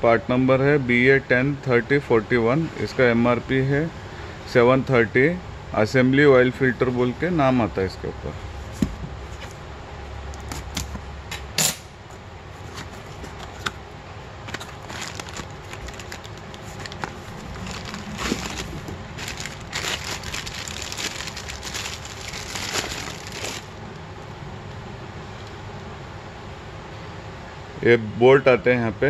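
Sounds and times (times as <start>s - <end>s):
plastic wrapping crinkling: 14.4s - 23.8s.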